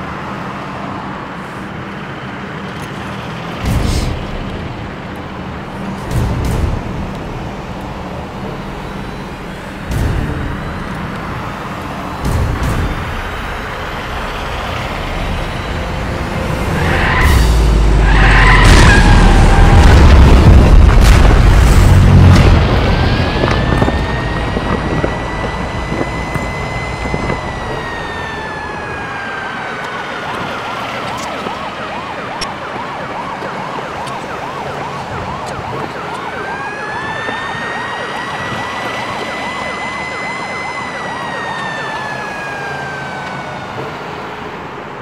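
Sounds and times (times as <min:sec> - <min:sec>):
emergency siren wailing: 0:07.0 - 0:45.0
explosion rumble: 0:16.5 - 0:28.2.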